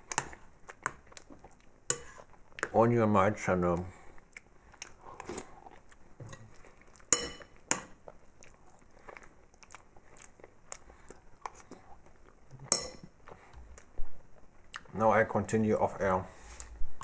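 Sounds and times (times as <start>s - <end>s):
soft chewing: 0.0s - 2.9s, 3.5s - 15.0s, 16.3s - 17.0s
metal spoon clinking ceramic bowl: 7.1s - 7.9s, 12.7s - 13.0s.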